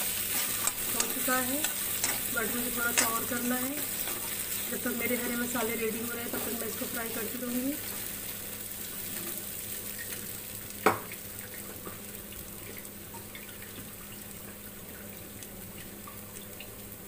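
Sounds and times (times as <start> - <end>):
paste sizzling in oil: 0.0 - 14.4
metal spoon knocking on pan: 2.9 - 3.3.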